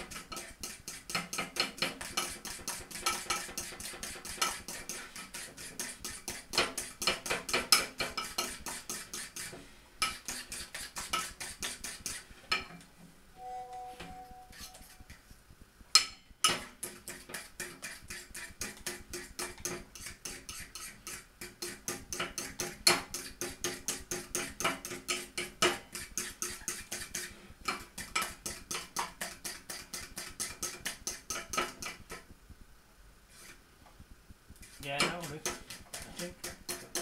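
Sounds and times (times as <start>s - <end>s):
fork beating batter in bowl: 0.0s - 12.8s, 15.9s - 32.3s, 34.5s - 37.0s.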